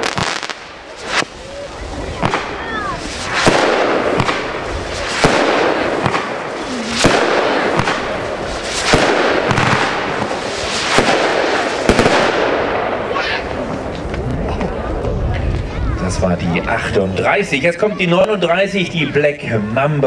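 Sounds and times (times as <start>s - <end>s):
firework hissing: 0.0s - 13.6s
firework bangs: 0.0s - 14.5s.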